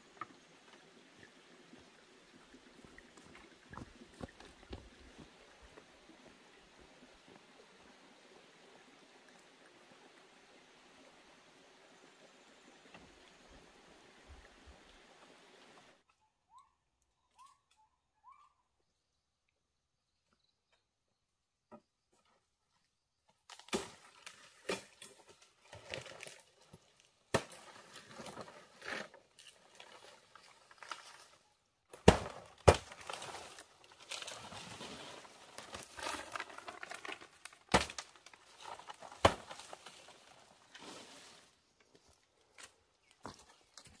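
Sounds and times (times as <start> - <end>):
leaves and twigs rustling: 23.3 - 44.0.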